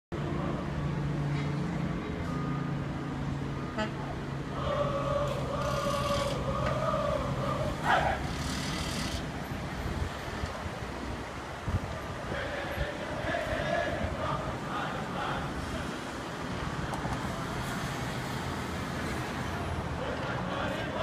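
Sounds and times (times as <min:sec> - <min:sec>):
traffic engines humming: 0:00.1 - 0:21.0.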